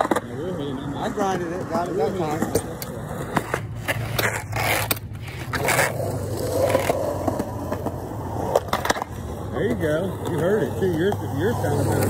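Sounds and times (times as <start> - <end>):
skateboard clacks: 0.0 - 12.0
skateboard trucks grinding: 0.0 - 12.0
skateboard wheels on concrete: 0.0 - 12.0.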